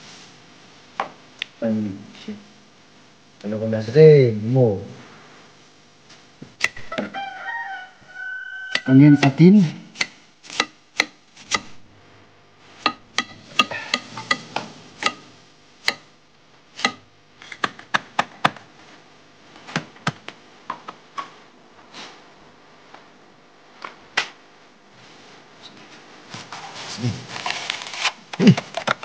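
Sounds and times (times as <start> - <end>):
knife chopping onions on a board: 10.0 - 11.8, 12.8 - 16.1, 16.8 - 18.6.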